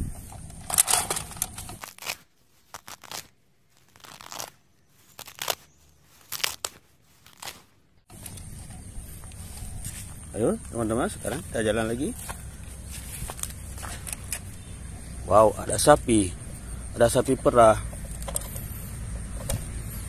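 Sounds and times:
rustling handling noise: 0.1s - 14.7s.

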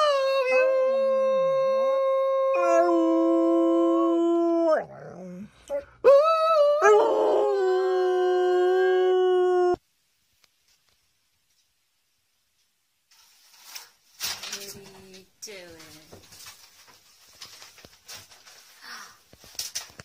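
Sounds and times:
dog howling: 0.0s - 9.8s.

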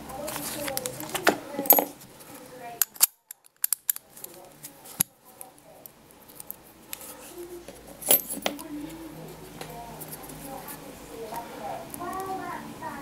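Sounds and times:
padlock metallic clicks: 2.8s - 4.1s.

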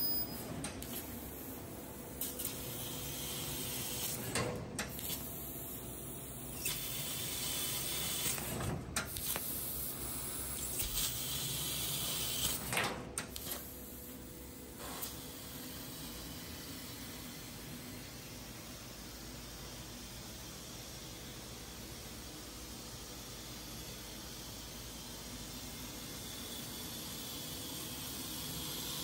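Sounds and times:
laser assist gas hissing: 6.6s - 8.4s, 13.4s - 17.6s.

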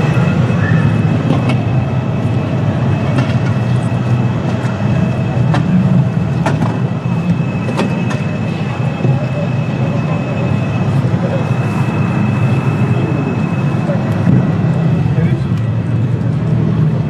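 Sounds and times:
crowd din in a hall: 0.0s - 17.0s.

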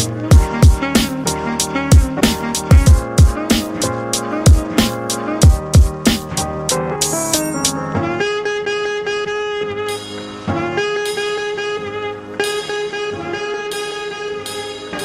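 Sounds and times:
instrumental background music: 0.0s - 15.0s
drum hits: 0.3s - 1.2s, 1.9s - 3.8s, 4.5s - 6.4s.

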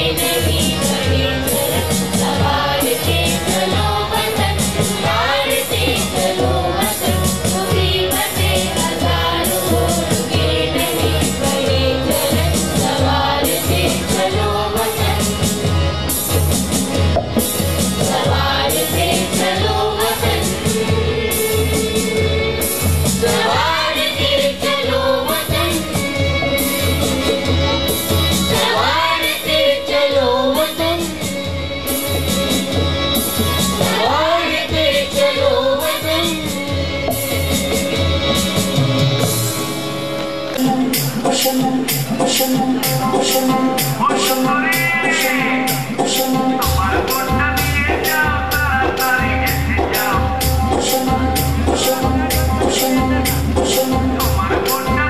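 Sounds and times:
children's choir singing: 0.0s - 15.6s, 18.0s - 27.0s, 28.5s - 32.2s, 33.8s - 37.9s
conga drums beating: 0.0s - 55.0s
harmonium: 0.0s - 55.0s.

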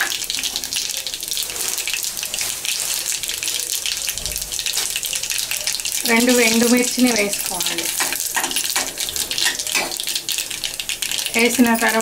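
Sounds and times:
spices sizzling in hot oil: 0.0s - 12.0s.

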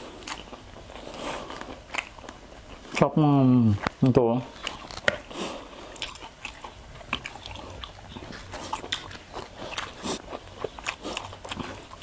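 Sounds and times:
crunching and chewing crispy food: 0.0s - 12.0s.

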